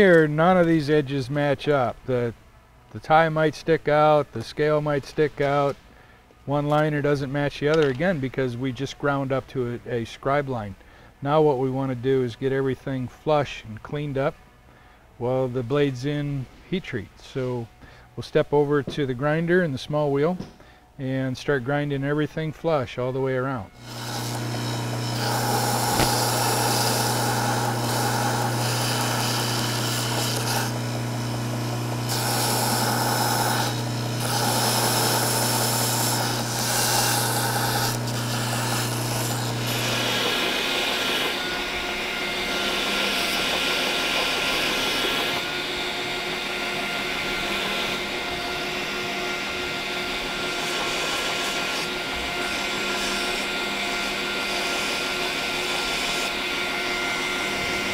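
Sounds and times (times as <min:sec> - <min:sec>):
steady low hum: 0:23.6 - 0:53.9
belt grinder grinding: 0:23.8 - 0:57.9
hissy high grinding: 0:23.8 - 0:57.9.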